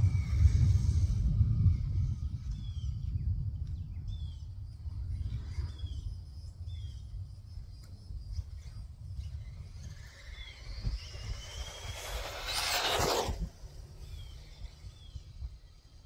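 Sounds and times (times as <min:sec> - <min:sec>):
wind rumble on microphone: 0:00.0 - 0:16.0.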